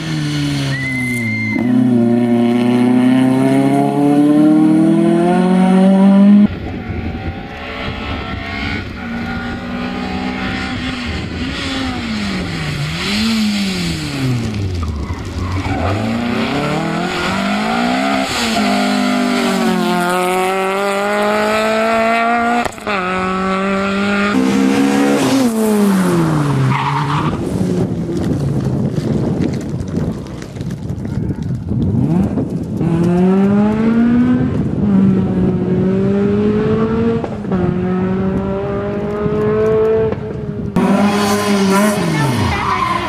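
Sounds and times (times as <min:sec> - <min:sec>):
rally car engine revving: 0:00.0 - 0:28.7, 0:31.9 - 0:43.0
tyres skidding on loose surface: 0:11.6 - 0:20.6.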